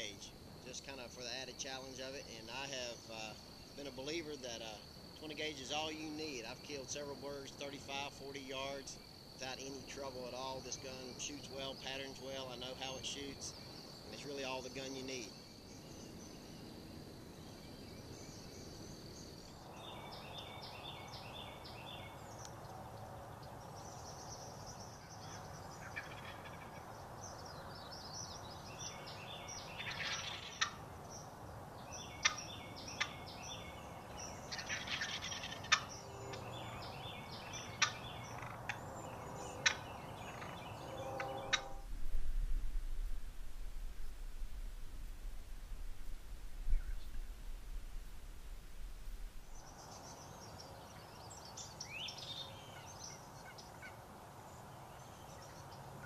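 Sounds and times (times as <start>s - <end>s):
small birds singing: 0.0s - 41.9s, 46.0s - 47.5s, 49.4s - 56.0s
turkeys gobbling: 25.8s - 26.9s, 29.8s - 30.8s, 32.2s - 33.1s, 34.5s - 36.4s, 39.6s - 40.6s
low rumble: 41.3s - 49.6s.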